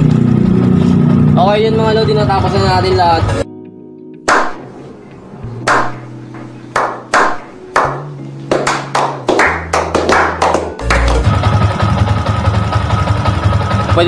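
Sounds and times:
people clapping in rhythm: 4.3s - 4.5s, 6.8s - 11.3s.

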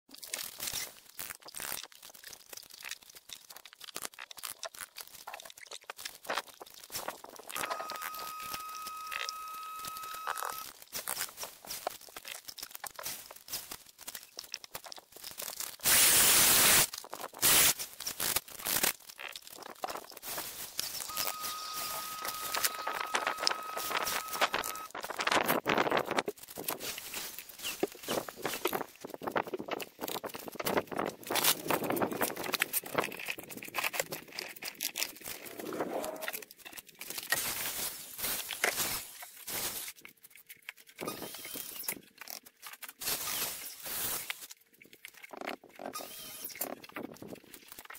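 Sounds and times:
scraping and clicking on stone: 27.7s - 37.4s, 38.5s - 47.9s.

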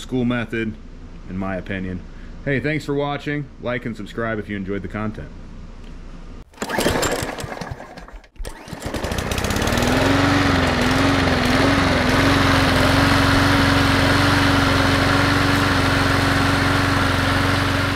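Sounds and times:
short clattering burst: 6.5s - 9.4s
lawn mower engine running: 6.5s - 17.9s.

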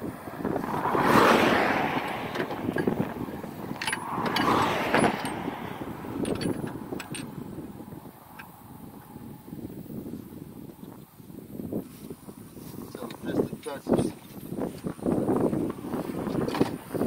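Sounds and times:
vehicles passing on highway: 0.0s - 17.0s
hand tools clicking on metal: 3.7s - 5.4s, 6.2s - 7.3s.

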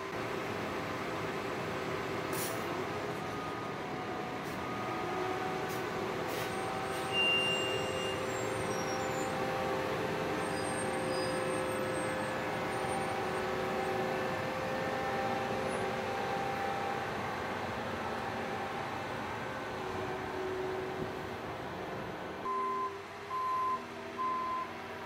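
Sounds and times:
street sweeper truck humming: 0.0s - 25.0s
high squeal: 6.4s - 9.4s, 10.4s - 13.2s.

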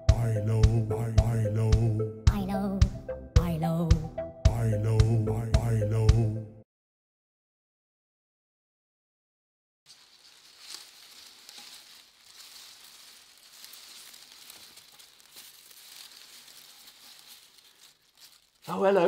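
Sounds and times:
dry grass rustling and crackling: 9.9s - 19.0s.

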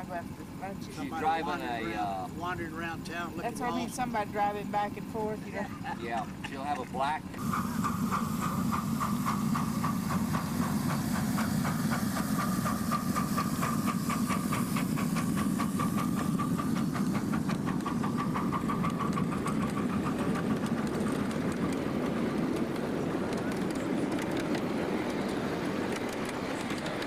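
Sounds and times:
wheels clicking on track: 1.3s - 27.0s
steam locomotive hissing: 7.4s - 27.0s.

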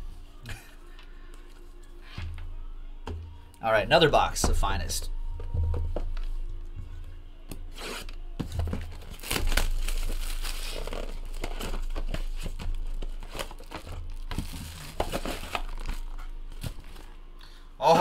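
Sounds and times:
plastic shrink wrap crinkling: 8.6s - 17.1s.

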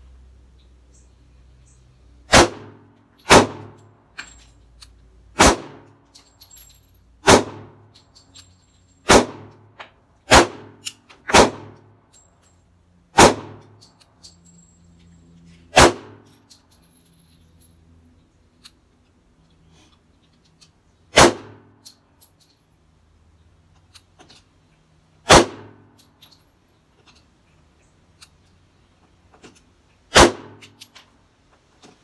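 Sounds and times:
pistol shots echoing: 2.3s - 3.8s, 5.4s - 5.9s, 7.2s - 7.8s, 9.1s - 9.6s, 10.3s - 11.8s, 13.2s - 13.6s, 15.8s - 16.2s, 21.1s - 21.7s, 25.3s - 25.8s, 30.1s - 30.7s.

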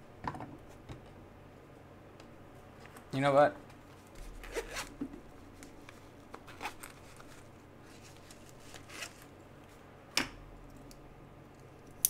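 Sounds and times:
soft clicks and rustles of handling: 5.5s - 9.8s.

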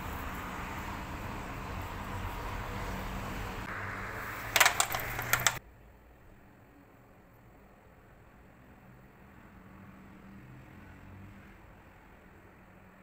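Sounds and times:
street background noise: 0.0s - 13.0s
sharp clicks and taps: 4.6s - 5.6s.

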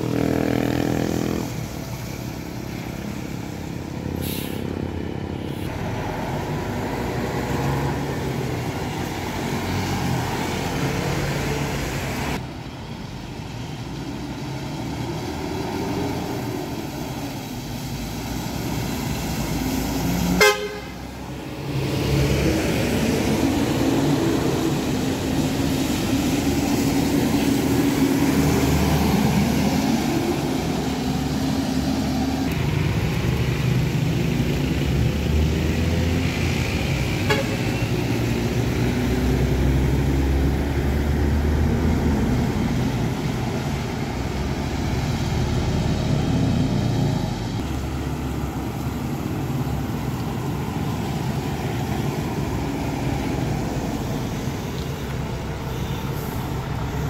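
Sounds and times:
buses driving past: 0.0s - 57.0s
tyre hiss on wet road: 1.5s - 4.8s, 47.4s - 57.0s
bus horn toot: 20.4s - 21.0s, 37.2s - 37.9s.

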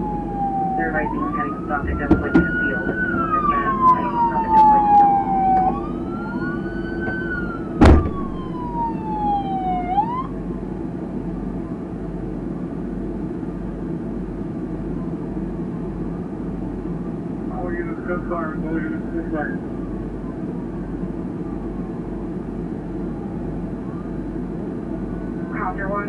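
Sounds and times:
police sirens wailing: 0.0s - 10.4s
steady low rumble: 0.0s - 26.0s
sharp thump: 1.9s - 2.6s, 7.8s - 8.5s.

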